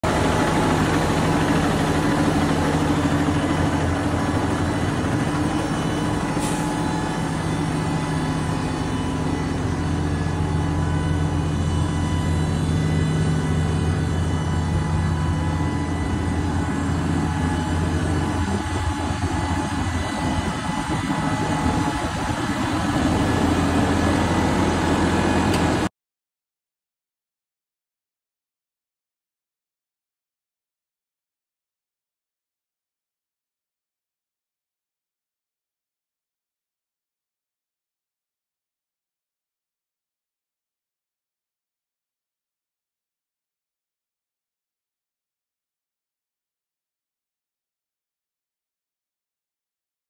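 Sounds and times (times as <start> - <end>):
diesel engine idling: 0.0 - 25.9.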